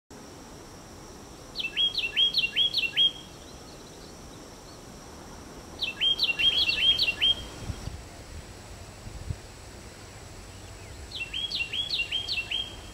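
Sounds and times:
background hiss: 0.1s - 12.9s
wren singing: 1.3s - 4.9s, 5.8s - 7.9s, 10.5s - 12.9s.

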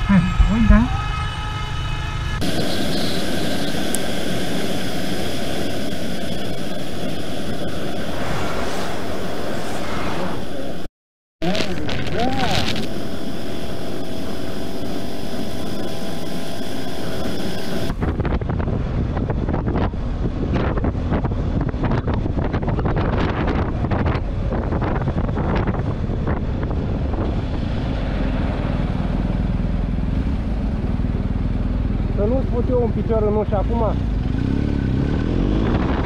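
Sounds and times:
motorcycle engine running: 0.0s - 8.0s, 24.2s - 36.0s
wind buffeting on microphone: 17.8s - 28.7s, 35.4s - 36.0s.

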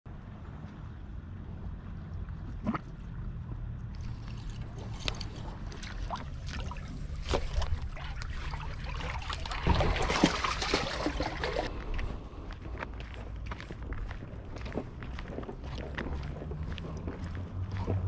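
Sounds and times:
steady low rumble: 0.1s - 18.0s
seawater lapping against wall: 2.0s - 12.1s
water splashing: 2.2s - 11.7s.

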